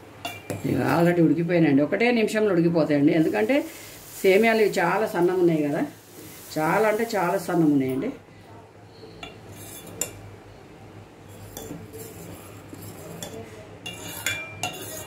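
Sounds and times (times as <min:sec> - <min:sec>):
ladle clinking against metal pot: 0:00.2 - 0:00.6, 0:12.8 - 0:15.0.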